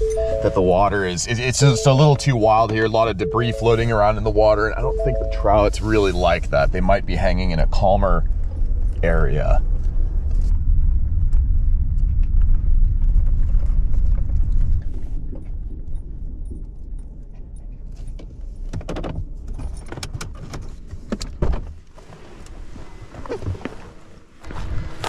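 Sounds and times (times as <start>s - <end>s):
truck road and engine rumble: 0.0s - 14.5s.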